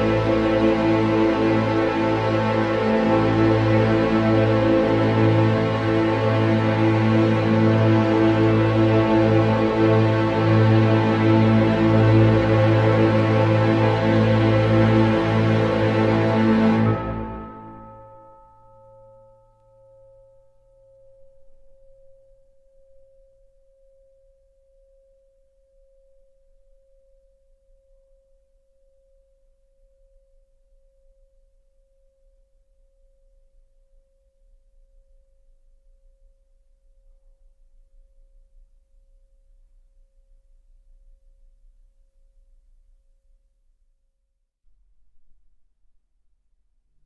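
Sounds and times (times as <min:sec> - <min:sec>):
orchestral bell ringing: 0:14.4 - 0:19.0.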